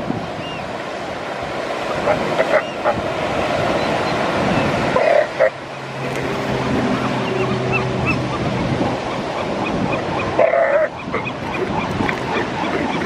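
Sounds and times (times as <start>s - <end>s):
steady surf: 0.0s - 13.0s
elephant seals calling: 1.9s - 6.2s, 6.9s - 13.0s.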